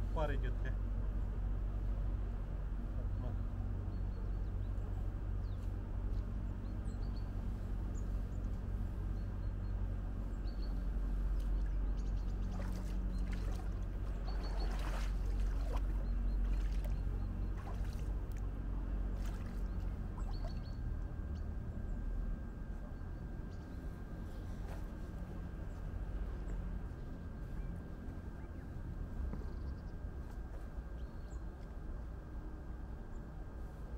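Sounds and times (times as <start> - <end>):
steady low rumble: 0.0 - 33.9
bare feet wading in water: 11.2 - 20.9
sharp splashes: 12.4 - 18.4, 19.2 - 20.6.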